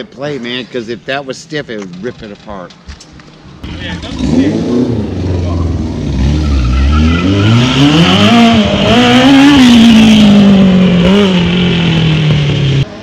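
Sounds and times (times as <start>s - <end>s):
motorcycle engine revving: 3.6s - 13.0s.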